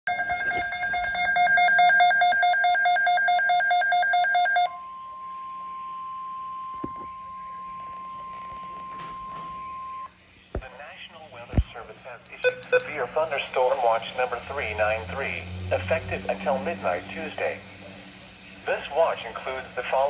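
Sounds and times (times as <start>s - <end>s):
steady alert tone: 12.4s - 13.0s
rapidly pulsing electronic beep: 12.4s - 13.1s.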